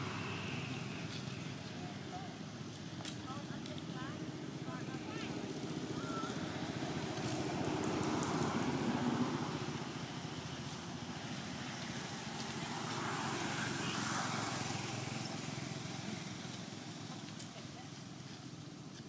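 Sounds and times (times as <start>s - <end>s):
vehicle engine running: 0.0s - 19.0s.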